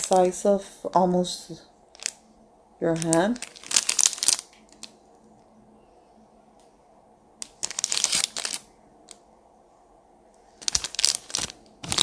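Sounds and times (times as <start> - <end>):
plastic bag crinkling: 0.0 - 0.4, 1.9 - 2.2, 2.8 - 5.0, 7.4 - 8.7, 10.6 - 12.0.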